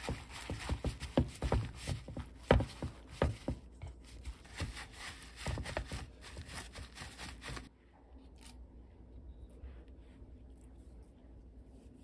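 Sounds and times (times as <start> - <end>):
paper towel dabbing meat: 0.0 - 7.7.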